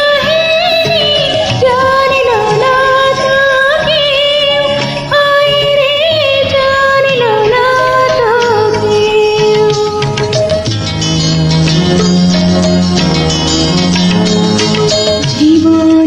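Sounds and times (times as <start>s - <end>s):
woman singing: 0.0s - 10.6s, 15.3s - 16.0s
karaoke backing track: 0.0s - 16.0s.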